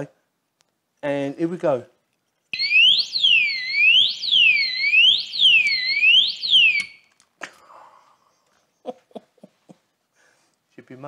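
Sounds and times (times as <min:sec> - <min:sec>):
electronic alarm siren wailing: 0:02.6 - 0:07.0.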